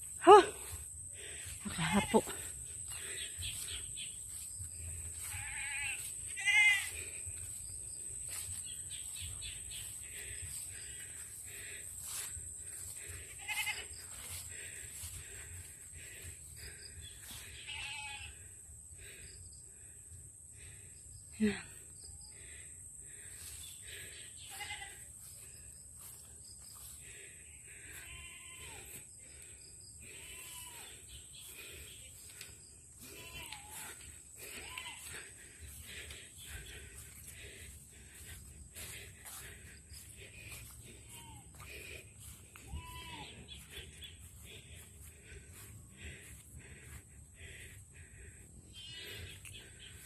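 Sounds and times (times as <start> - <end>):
goat bleating: 1.7 - 2.4, 5.2 - 6.9, 13.4 - 13.9, 17.6 - 18.3, 24.5 - 25.0, 28.0 - 28.9, 33.0 - 35.3, 42.7 - 43.5.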